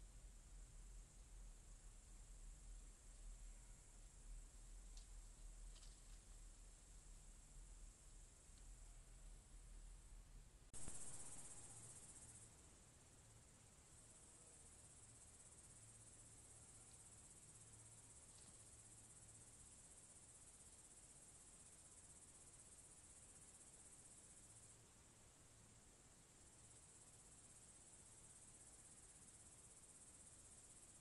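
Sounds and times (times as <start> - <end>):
crickets chirring: 10.8 - 31.0.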